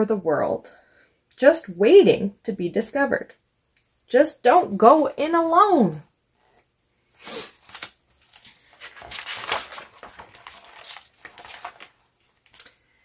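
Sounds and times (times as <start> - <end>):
book page turning: 6.4 - 12.8.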